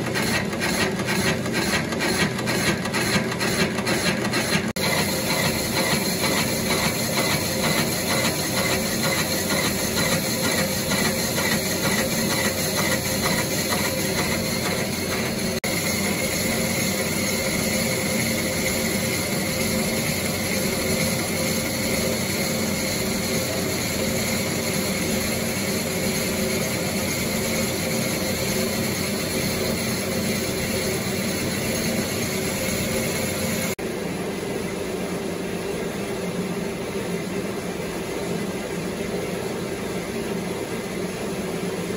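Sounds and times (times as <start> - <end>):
cutting tool scraping metal: 0.0 - 23.5
lathe drive tones: 0.0 - 33.8.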